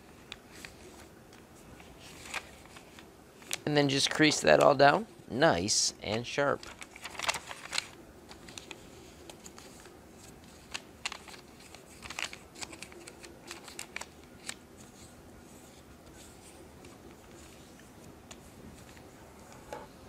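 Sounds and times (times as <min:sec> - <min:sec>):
paper rustling: 0:00.0 - 0:05.0, 0:06.0 - 0:20.0.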